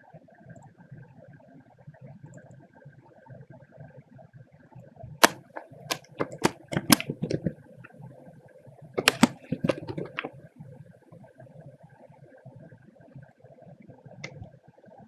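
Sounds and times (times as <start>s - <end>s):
keyboard typing clicks: 5.2s - 8.0s, 9.0s - 10.4s.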